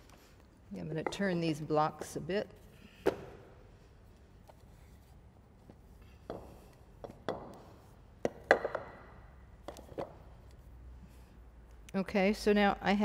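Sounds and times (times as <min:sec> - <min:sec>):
wooden blocks knocking: 0:06.3 - 0:10.2.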